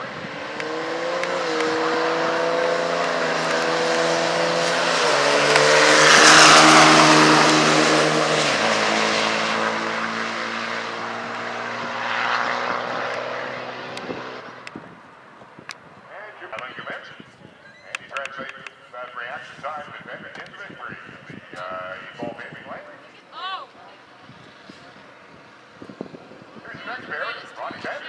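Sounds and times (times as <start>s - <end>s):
diesel pickup trucks accelerating: 0.0s - 14.9s.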